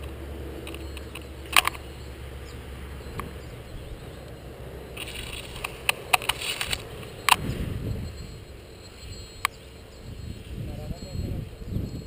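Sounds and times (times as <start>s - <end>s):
sharp clicks and snaps: 0.0s - 1.8s, 5.0s - 7.4s.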